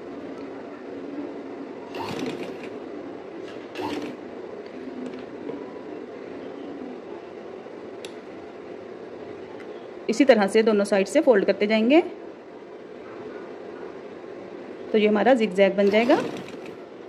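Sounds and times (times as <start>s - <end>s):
sewing machine running: 1.9s - 2.7s, 3.7s - 4.2s, 15.8s - 16.8s.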